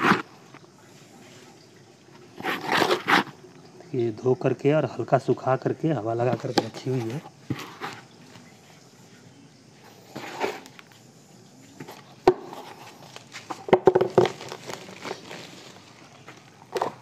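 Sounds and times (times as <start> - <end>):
plastic sack crinkling: 13.0 - 17.0.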